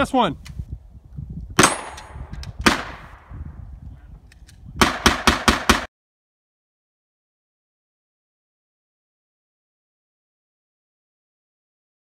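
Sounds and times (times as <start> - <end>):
gunshots: 1.6 - 3.1, 4.8 - 5.9.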